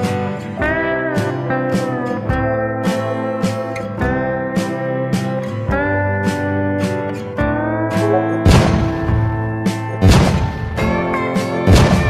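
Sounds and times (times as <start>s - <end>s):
slide guitar tune: 0.0s - 12.0s
sustained bass notes: 7.8s - 10.6s
loud drum hit: 8.4s - 9.4s, 10.0s - 10.7s.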